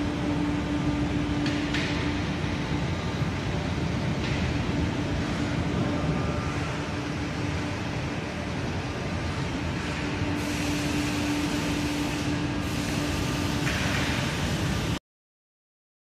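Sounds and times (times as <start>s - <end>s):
grinding machine hum: 0.0s - 15.0s
grinding hiss: 9.8s - 15.0s.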